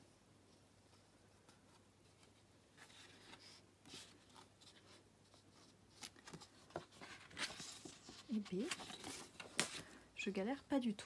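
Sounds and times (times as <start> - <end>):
paper sheets rustling: 1.5 - 10.0.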